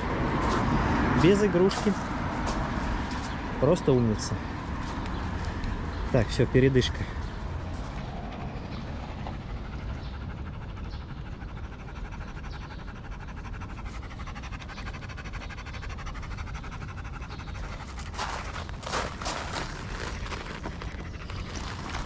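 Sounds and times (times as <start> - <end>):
dog panting rapidly: 3.9 - 22.0.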